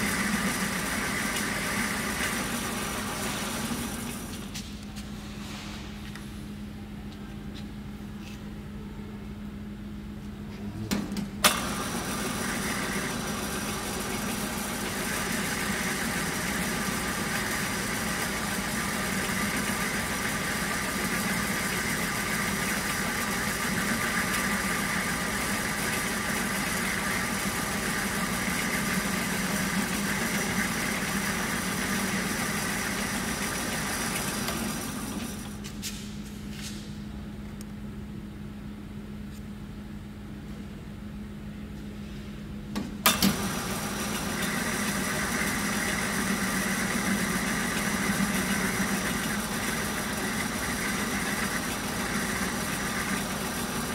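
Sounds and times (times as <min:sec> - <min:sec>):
lathe running: 0:00.0 - 0:04.6, 0:11.5 - 0:35.6, 0:43.1 - 0:53.9.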